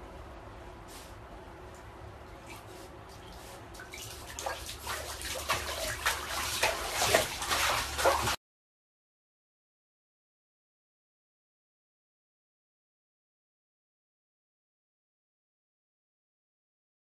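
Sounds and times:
water splashing in a bathtub: 2.3 - 8.4.

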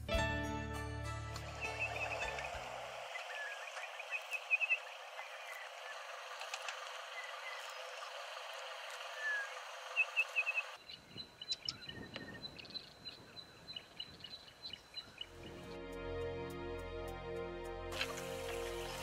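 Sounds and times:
small birds chirping: 1.5 - 15.7.

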